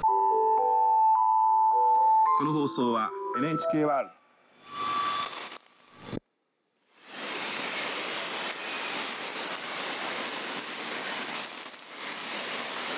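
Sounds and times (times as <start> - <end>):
radio static hiss: 4.6 - 6.2, 7.0 - 12.9.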